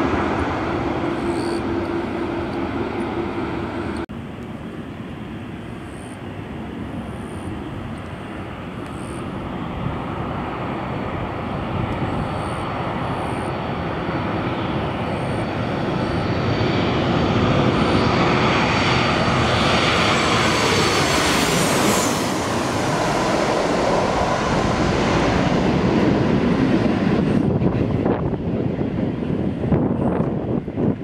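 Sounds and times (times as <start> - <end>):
jet airliner engine roar: 0.0 - 31.0
jet engine whine: 0.0 - 31.0.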